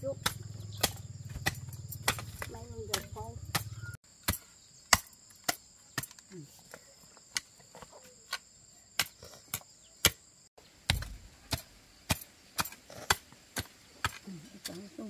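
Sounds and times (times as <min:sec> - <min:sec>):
chopping blows: 0:00.0 - 0:06.3
high insect drone: 0:00.0 - 0:10.5.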